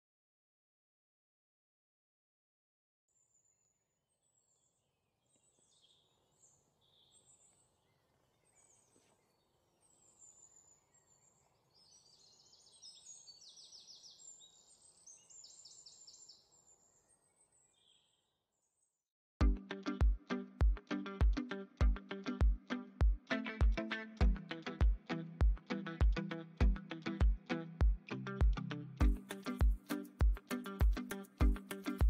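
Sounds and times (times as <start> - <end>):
songbirds chirping and trilling: 3.2 - 19.0
soft outdoor hiss: 4.4 - 17.2, 19.5 - 32.0.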